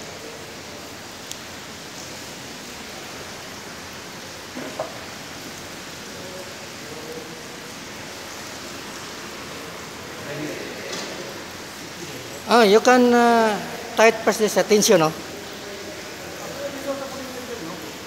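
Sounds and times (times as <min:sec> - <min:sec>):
background hiss: 0:00.0 - 0:18.0.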